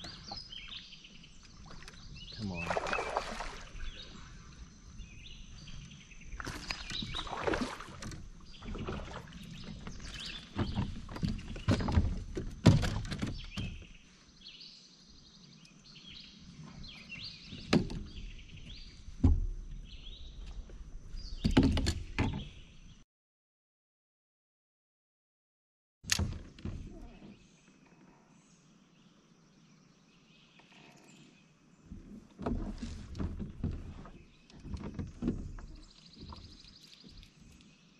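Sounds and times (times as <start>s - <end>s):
knocks and thumps in a plastic kayak: 0.0s - 4.3s, 4.9s - 14.1s, 16.7s - 22.8s, 26.1s - 27.4s, 31.8s - 37.3s
birds chirping: 0.0s - 12.2s, 33.4s - 37.9s.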